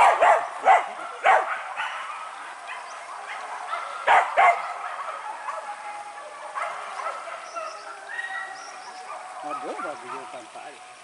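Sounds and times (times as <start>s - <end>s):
dogs barking: 0.0s - 10.7s.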